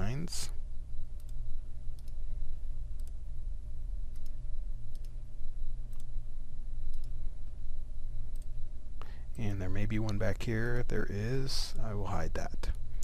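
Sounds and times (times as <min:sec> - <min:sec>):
low electrical hum: 0:00.0 - 0:13.0
computer mouse clicking: 0:01.2 - 0:02.2, 0:03.0 - 0:03.2, 0:04.1 - 0:05.2, 0:05.9 - 0:06.1, 0:06.9 - 0:07.2, 0:08.3 - 0:08.5.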